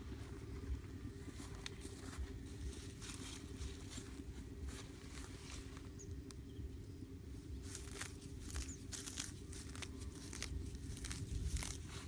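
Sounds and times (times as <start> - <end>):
low steady hum: 0.0 - 12.0
grass being pulled and torn: 1.2 - 5.9, 7.4 - 12.0
stems snapping: 7.6 - 12.0.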